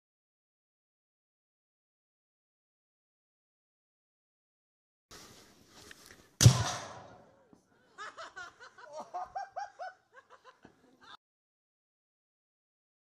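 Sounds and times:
cannon boom: 6.4s - 7.3s
people laughing: 7.5s - 11.2s.

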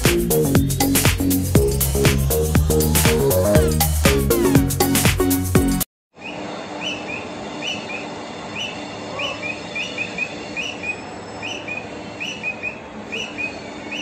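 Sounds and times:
squirrel chirping: 6.2s - 14.0s.

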